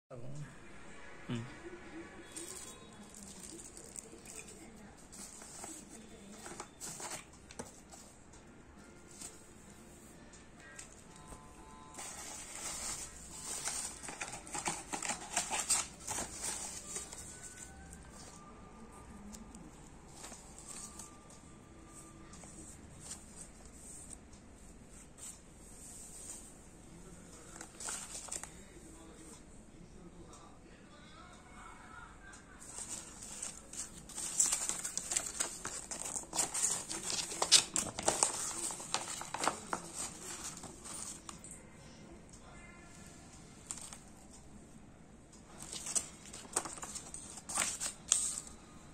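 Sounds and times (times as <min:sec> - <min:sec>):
bubble wrap crinkling: 0:02.3 - 0:07.8, 0:12.0 - 0:18.5, 0:32.6 - 0:41.5, 0:45.5 - 0:48.5
paper rustling: 0:02.3 - 0:08.2, 0:11.9 - 0:18.4, 0:27.5 - 0:28.6, 0:32.6 - 0:41.5, 0:43.6 - 0:44.3, 0:45.5 - 0:48.5.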